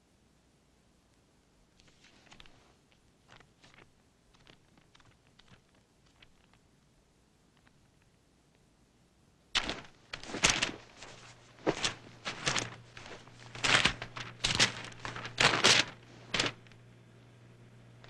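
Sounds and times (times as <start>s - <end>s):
paper rustling and shuffling: 1.8s - 6.6s, 9.6s - 16.8s.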